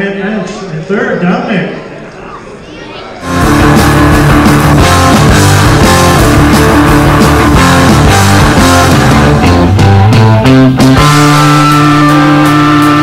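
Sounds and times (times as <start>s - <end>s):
guitar-led rock music: 3.2s - 13.0s.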